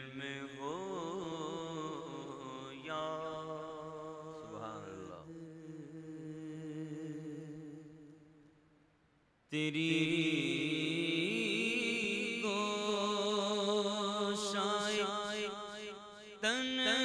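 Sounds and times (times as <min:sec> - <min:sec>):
man singing devotional song: 0:00.0 - 0:08.3, 0:09.5 - 0:17.0.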